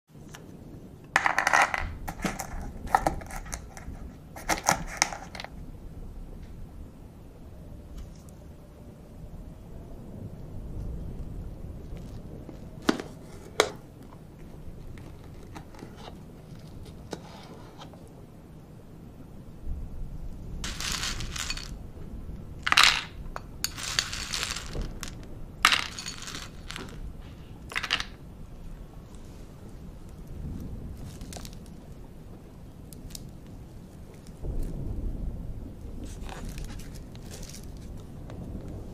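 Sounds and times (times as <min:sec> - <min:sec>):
plastic spoon stirring nuts: 0:01.2 - 0:05.5, 0:20.6 - 0:21.8, 0:22.7 - 0:27.0
nuts poured into plastic cup: 0:20.6 - 0:21.8, 0:22.6 - 0:27.0, 0:27.7 - 0:28.2
rice puffs rattling onto plastic tray: 0:20.6 - 0:21.8, 0:22.6 - 0:27.0.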